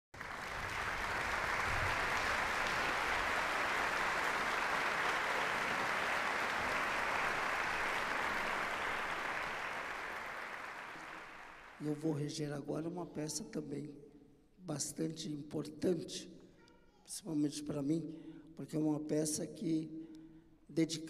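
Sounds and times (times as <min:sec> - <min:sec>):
audience applauding: 0:00.1 - 0:11.9.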